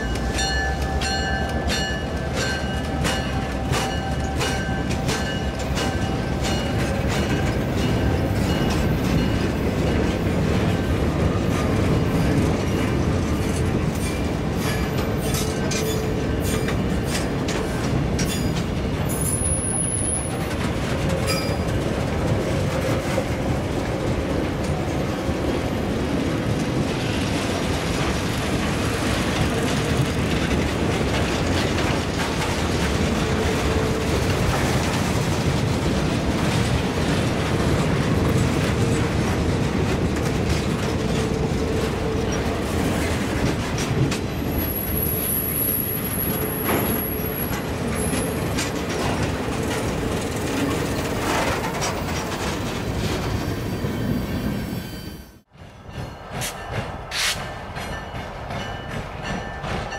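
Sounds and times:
freight train wheels clicking: 0.0 - 53.8, 55.4 - 59.9
high wheel squeal: 53.0 - 55.4.

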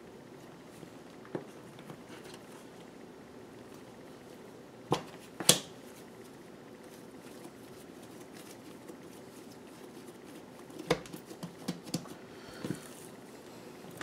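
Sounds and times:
hands patting dough: 6.8 - 12.9.

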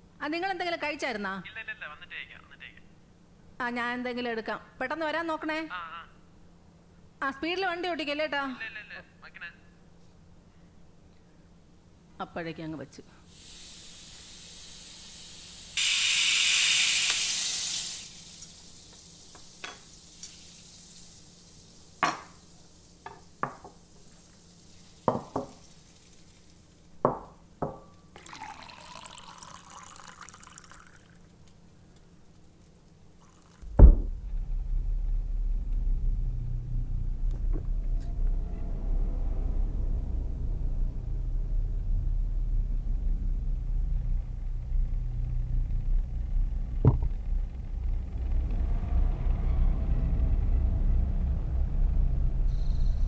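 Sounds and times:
pressure cooker steam hissing: 13.2 - 26.6
water pouring: 15.8 - 26.9, 28.1 - 31.4, 33.2 - 34.2
steel cups and glass clinking: 18.0 - 24.2, 24.8 - 26.6, 28.2 - 31.2, 33.2 - 33.6
loud thud: 33.6 - 37.9, 46.8 - 47.2
steady low rumble: 33.6 - 53.0.

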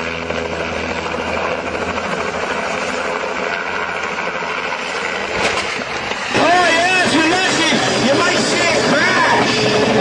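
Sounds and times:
helicopter engine and rotor: 0.0 - 10.0.

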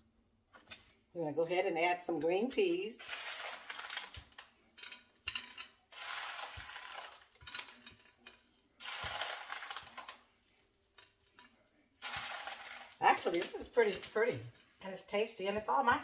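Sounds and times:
peas rustling in plastic container: 3.0 - 4.5, 5.9 - 8.0, 8.8 - 10.4, 12.0 - 14.2.

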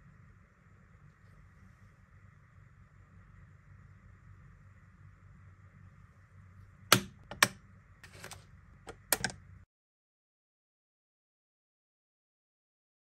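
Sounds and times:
plastic case clicks and taps: 6.9 - 7.6.

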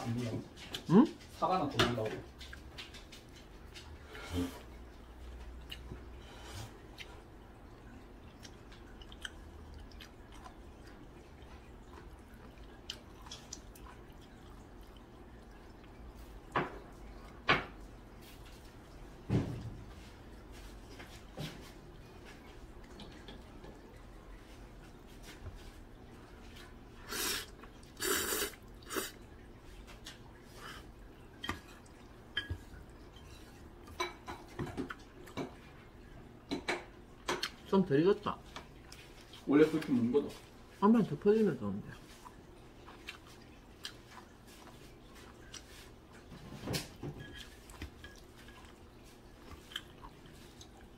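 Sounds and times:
chewing: 2.0 - 19.2, 20.1 - 37.7, 38.4 - 40.8, 41.8 - 50.9
slurping noodles: 27.0 - 29.2.

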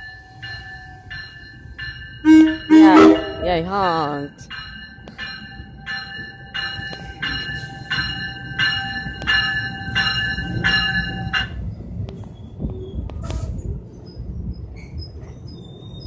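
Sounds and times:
bell ringing: 0.0 - 11.6
train rumbling: 0.0 - 16.0.

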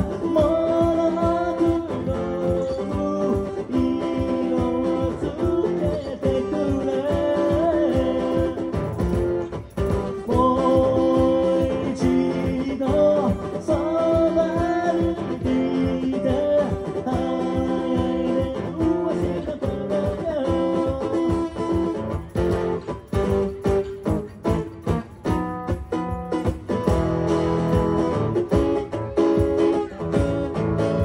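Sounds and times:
man singing: 0.0 - 22.7
acoustic guitar chords: 0.0 - 31.0.

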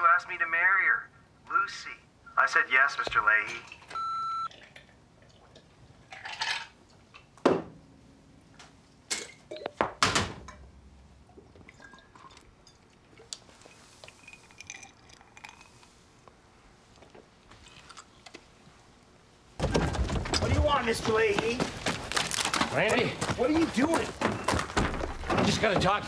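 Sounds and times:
glass and bottle clinking: 11.6 - 13.0.

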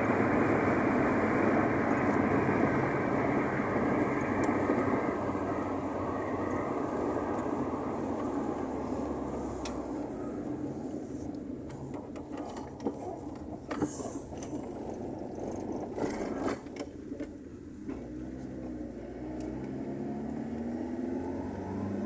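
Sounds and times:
car engine and tyre hum: 0.0 - 22.0
sharp clicks and rattles: 11.6 - 17.4.

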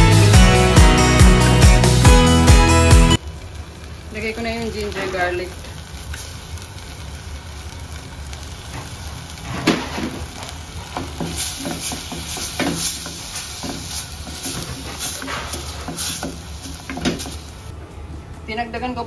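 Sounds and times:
food sizzling in a pan: 3.2 - 17.7
utensil scraping a pan: 10.9 - 17.4.

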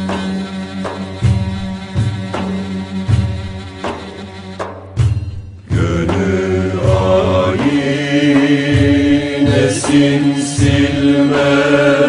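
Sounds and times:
low beat: 0.0 - 11.8
low accompaniment: 0.0 - 12.0
chanted vocal line: 5.7 - 12.0.

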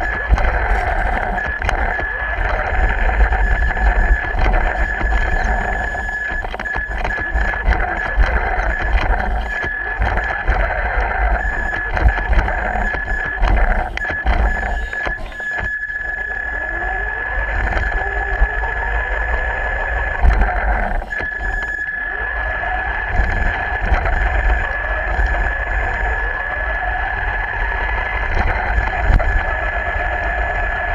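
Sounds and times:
rc car motor whine: 0.0 - 30.9.

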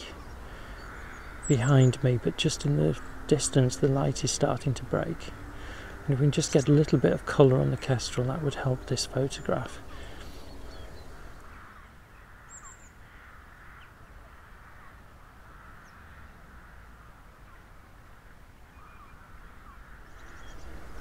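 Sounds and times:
distant birds calling: 0.0 - 21.0
low rumble: 7.8 - 11.6, 20.1 - 21.0.

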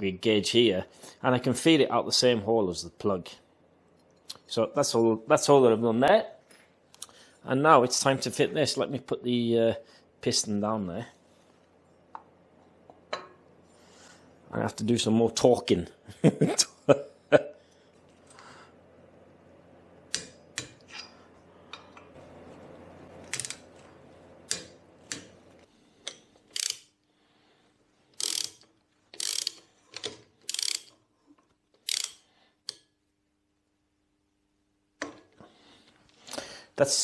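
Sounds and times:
hand ratchet clicking: 26.0 - 26.9, 28.2 - 31.0, 31.8 - 32.8.

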